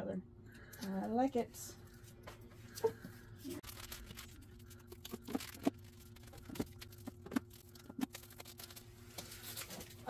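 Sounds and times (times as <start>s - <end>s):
faint steady hum: 0.0s - 10.0s
paper rustling: 3.4s - 10.0s.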